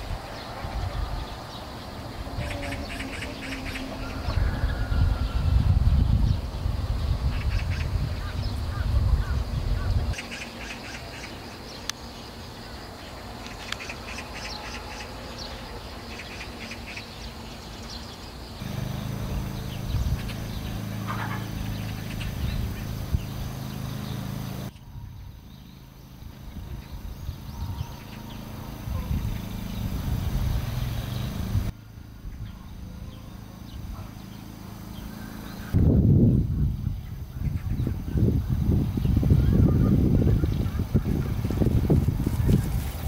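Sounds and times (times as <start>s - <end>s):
small birds chirping: 0.0s - 43.0s
low rumble: 18.6s - 25.3s.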